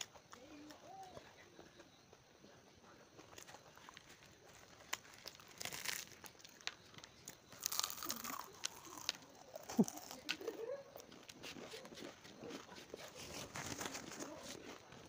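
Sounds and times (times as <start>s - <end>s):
crunchy food being chewed: 3.1s - 15.0s
fingers rustling through food: 3.2s - 15.0s
mouth smacking: 7.6s - 13.4s.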